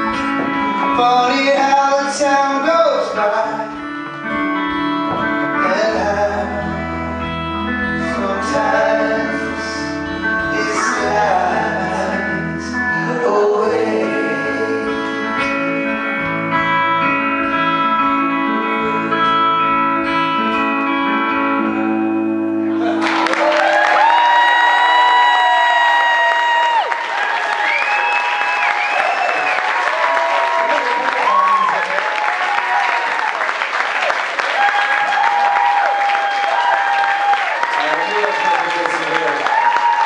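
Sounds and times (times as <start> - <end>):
live band playing guitars and keyboard: 0.0 - 26.1
men singing in harmony: 8.0 - 15.4.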